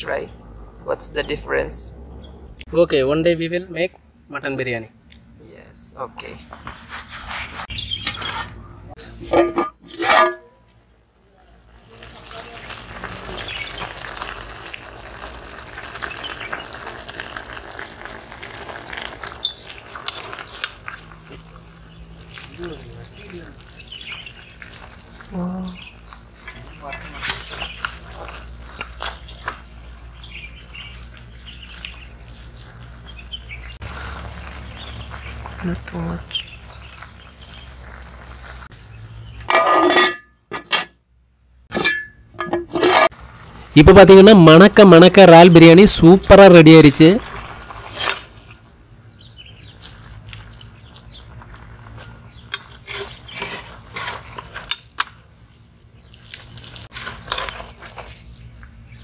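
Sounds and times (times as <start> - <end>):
metal ladle striking a pot: 9.2 - 10.6
rushing hiss with crackles: 10.7 - 25.3, 25.9 - 39.0, 46.4 - 48.7.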